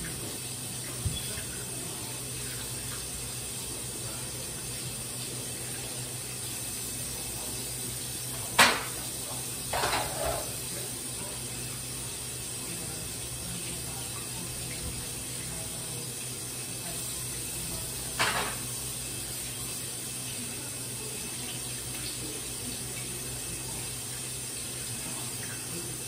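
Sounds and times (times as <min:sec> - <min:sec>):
sharp knock in sink: 0:08.6 - 0:09.0.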